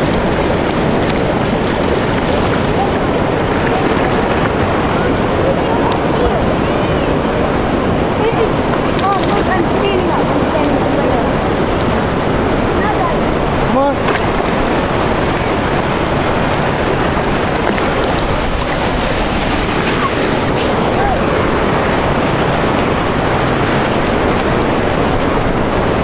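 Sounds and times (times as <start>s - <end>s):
dam water rushing: 0.0s - 26.0s
wind buffeting microphone: 0.0s - 26.0s.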